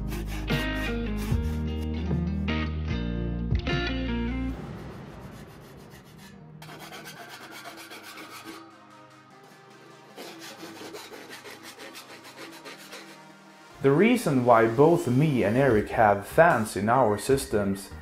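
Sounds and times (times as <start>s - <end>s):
hand file rasping metal edge: 0.0s - 1.6s, 5.6s - 8.8s, 10.1s - 13.3s.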